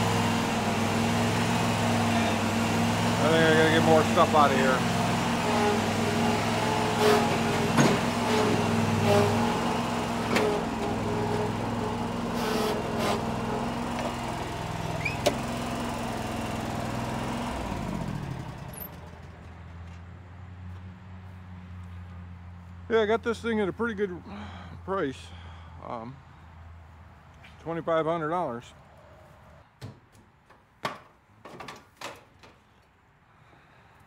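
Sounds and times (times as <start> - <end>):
mower engine idling: 0.0 - 19.7.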